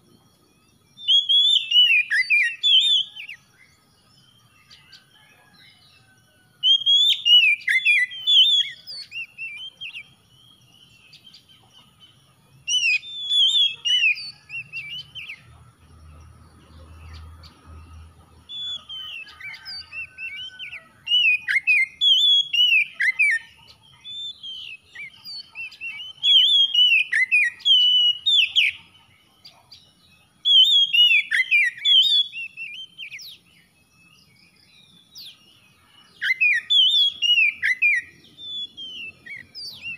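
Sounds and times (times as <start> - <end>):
bird singing whistled phrases: 0.0 - 5.3, 6.6 - 11.5, 12.7 - 15.4, 18.5 - 28.9, 30.4 - 33.5, 36.2 - 39.9.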